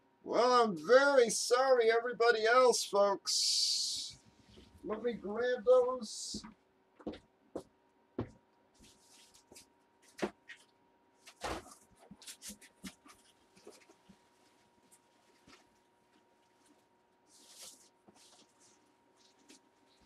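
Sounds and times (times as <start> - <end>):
cards and packaging handled: 8.8 - 20.0.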